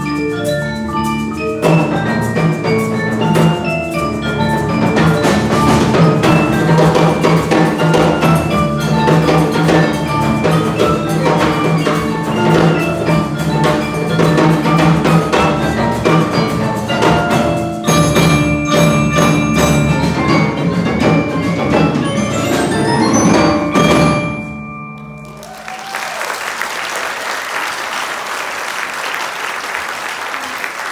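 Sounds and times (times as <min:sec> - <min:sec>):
mallet percussion ensemble playing: 0:00.0 - 0:30.9
audience applauding: 0:25.0 - 0:30.9.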